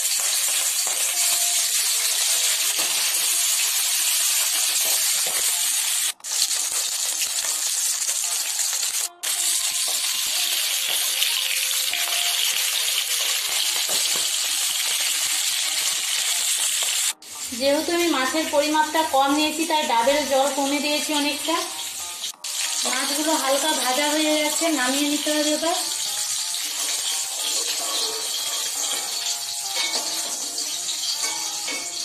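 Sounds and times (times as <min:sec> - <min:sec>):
fish sizzling in hot oil: 0:00.0 - 0:32.0.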